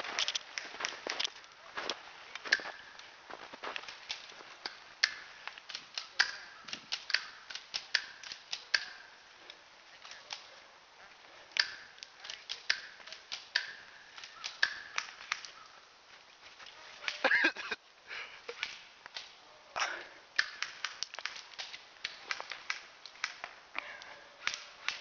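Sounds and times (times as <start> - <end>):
sharp clicks and snaps: 3.8 - 10.5, 11.5 - 15.6, 18.5 - 19.4, 20.4 - 25.0.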